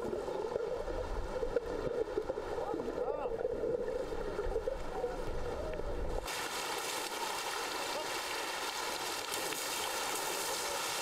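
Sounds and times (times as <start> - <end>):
muffled underwater rumble: 0.0 - 6.2
water splashing and rushing: 0.0 - 11.0.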